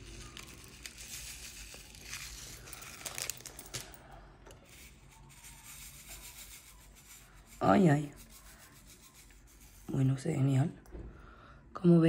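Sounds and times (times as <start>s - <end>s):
plastic bag crinkling: 0.0s - 4.1s.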